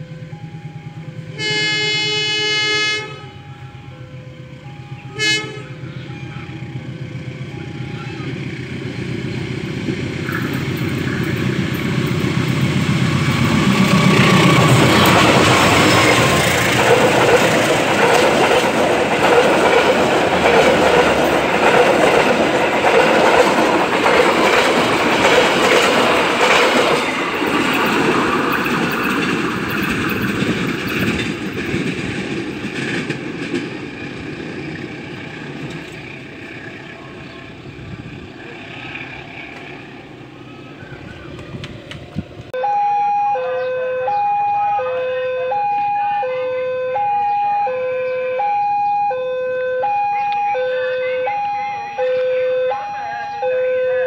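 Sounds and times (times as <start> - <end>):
locomotive engine drone: 0.0 - 54.0
train wheels clattering: 9.8 - 36.6.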